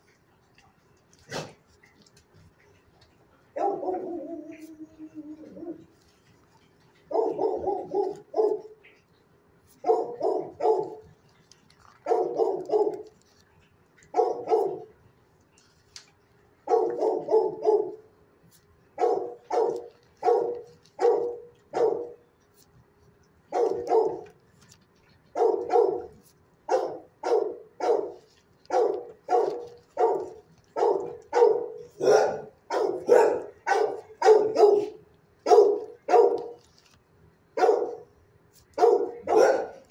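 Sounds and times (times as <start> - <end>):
dog barking: 3.6 - 4.7, 7.1 - 8.8, 9.7 - 11.0, 12.0 - 13.2, 14.1 - 14.9, 16.6 - 18.1, 19.0 - 22.2, 23.5 - 24.3, 25.3 - 36.7, 37.6 - 38.1, 38.8 - 39.9.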